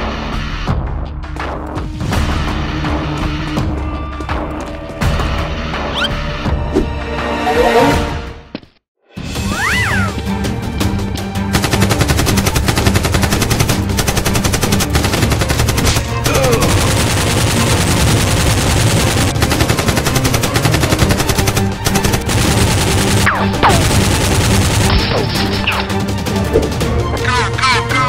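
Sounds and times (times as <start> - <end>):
background music: 0.0 - 28.0
automatic gunfire: 11.6 - 25.8.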